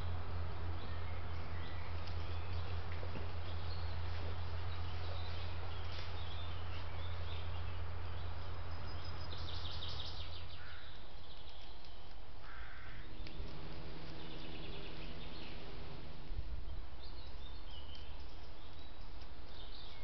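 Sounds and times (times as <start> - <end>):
birds calling: 0.0 - 20.0
microphone hiss and hum: 12.2 - 19.7.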